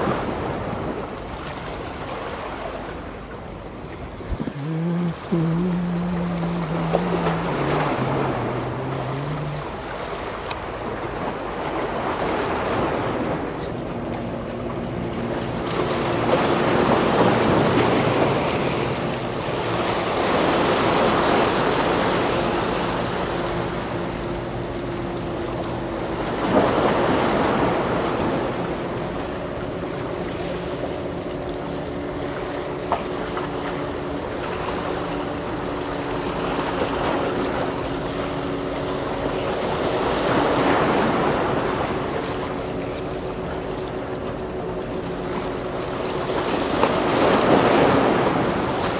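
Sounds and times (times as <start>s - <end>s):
faint steady hum: 0.0s - 48.9s
sea swell against concrete blocks: 0.0s - 48.9s
wind on microphone: 4.2s - 10.0s.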